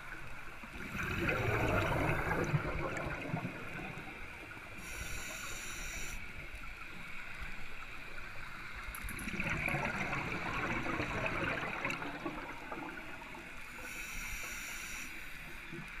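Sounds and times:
exhaled bubbles rushing underwater: 0.0s - 4.9s, 9.1s - 13.9s
regulator inhalation hiss: 4.8s - 6.3s, 13.7s - 15.6s.

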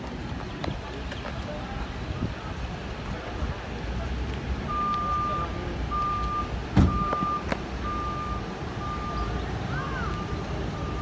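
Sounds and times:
vehicle backup alarm beeping: 4.6s - 11.0s.

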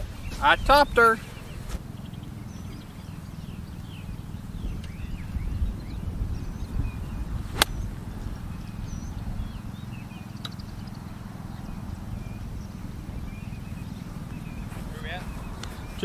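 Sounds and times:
small birds chirping: 0.0s - 16.0s
golf club striking ball: 7.5s - 8.1s.

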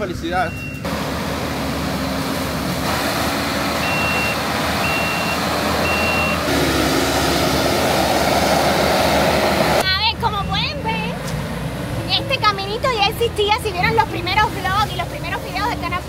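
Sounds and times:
backup alarm beeping: 0.4s - 0.9s, 3.8s - 6.5s
heavy machine engine running: 0.8s - 10.7s.

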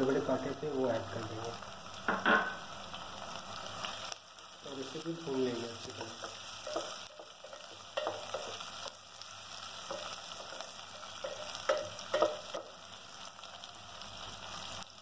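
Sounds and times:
vegetables sizzling in hot oil: 0.0s - 15.0s
wooden spatula knocking metal pot: 2.1s - 2.6s, 5.9s - 8.6s, 11.2s - 12.7s.

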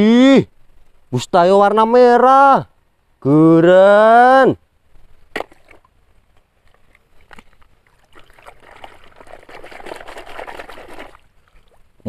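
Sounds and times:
water sloshing and splashing: 6.6s - 12.0s.

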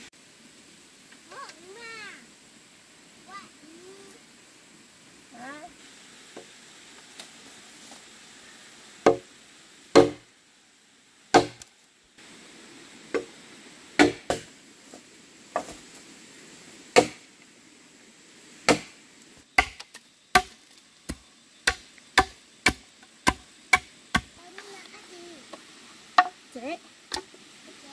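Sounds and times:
wood being chopped: 9.0s - 9.3s, 9.9s - 10.2s, 11.3s - 11.7s, 14.0s - 14.5s, 17.0s - 17.2s, 18.7s - 18.9s, 19.6s - 24.3s.

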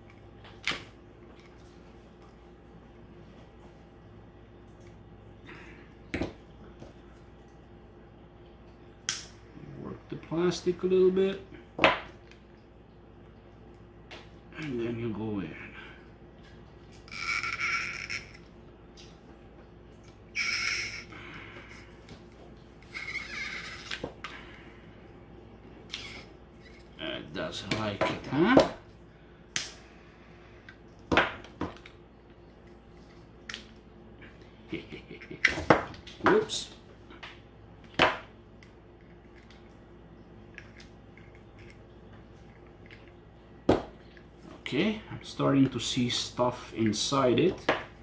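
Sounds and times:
low room hum: 0.0s - 48.0s
tool squeaking against plastic: 17.1s - 18.4s, 20.4s - 21.1s.

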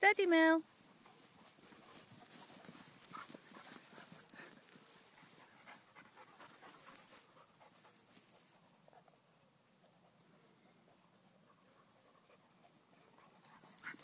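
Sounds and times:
footsteps in grass: 0.7s - 8.8s
dog panting: 1.0s - 9.2s, 11.3s - 14.0s.

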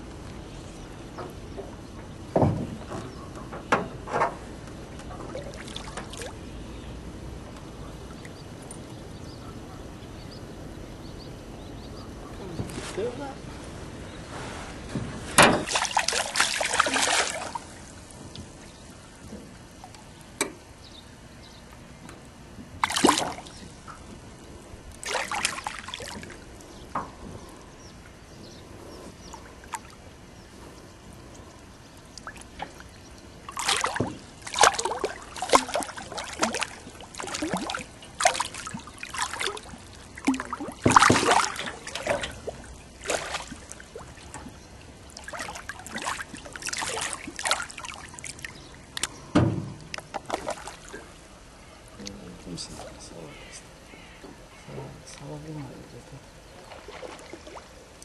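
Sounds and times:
water splashing: 5.1s - 6.5s, 15.2s - 20.2s, 22.7s - 26.8s, 31.4s - 53.5s, 55.0s - 58.0s.

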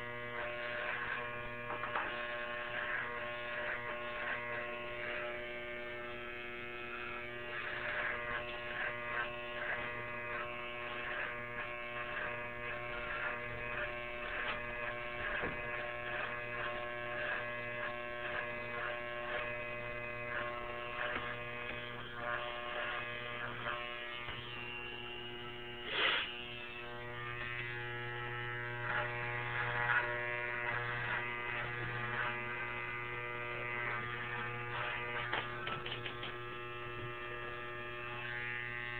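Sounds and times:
electric shaver buzzing: 0.0s - 38.9s
shaver rasping strokes: 0.0s - 38.9s.

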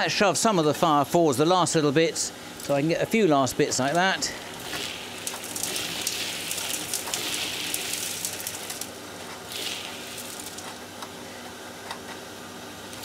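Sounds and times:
vacuum cleaner humming: 2.3s - 11.5s
debris rattling through nozzle: 3.9s - 10.8s.

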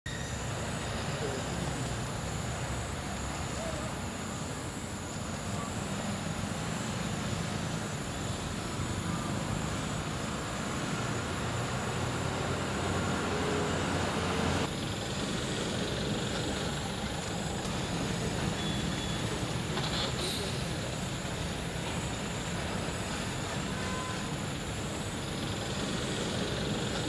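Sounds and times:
steady rumbling with hiss: 0.3s - 27.0s.

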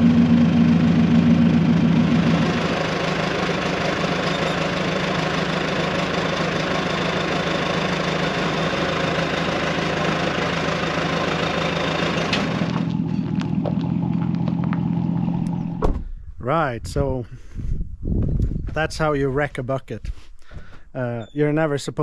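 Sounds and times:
engine running with low hum: 0.0s - 16.4s.

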